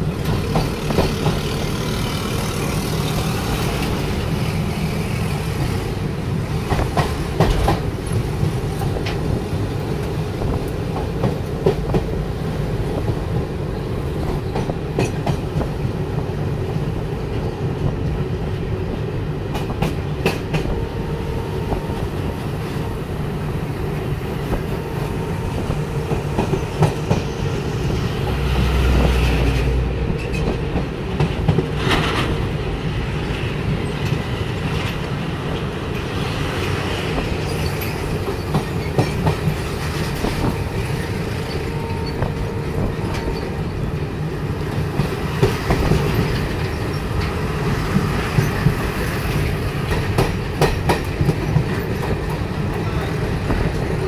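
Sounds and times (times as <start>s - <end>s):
wheels clacking over rail joints: 0.0s - 12.2s, 25.6s - 54.0s
rumble of train wheels on rails: 0.0s - 54.0s.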